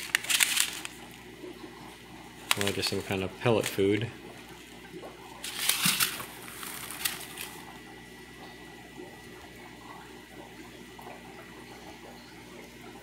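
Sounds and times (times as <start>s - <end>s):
plastic packets crinkling: 0.0s - 1.2s, 2.4s - 3.8s, 5.4s - 7.7s
running water: 0.0s - 13.0s.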